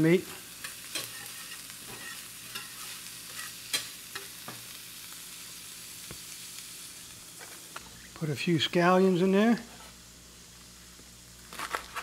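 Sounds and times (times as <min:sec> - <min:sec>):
food sizzling in butter: 0:00.0 - 0:12.0
utensil clicking on pan: 0:00.3 - 0:04.6.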